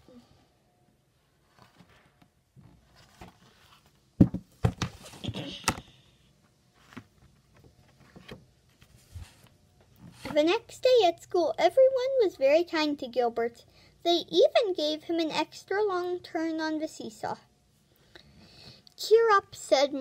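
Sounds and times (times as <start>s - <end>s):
sharp knocks on book: 4.2s - 4.9s.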